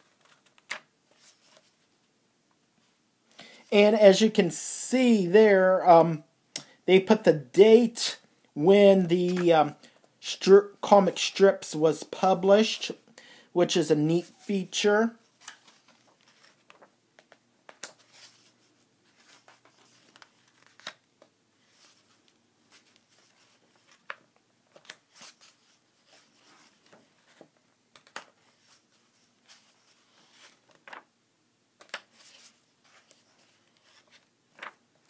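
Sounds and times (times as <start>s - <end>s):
book pages rustling: 0.0s - 2.0s, 9.0s - 10.1s, 15.2s - 31.1s, 31.8s - 35.0s.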